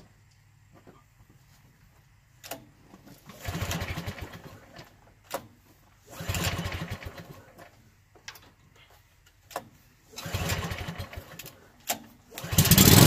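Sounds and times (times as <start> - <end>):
engine cranking with starter rope: 3.2 - 7.8, 9.5 - 13.0.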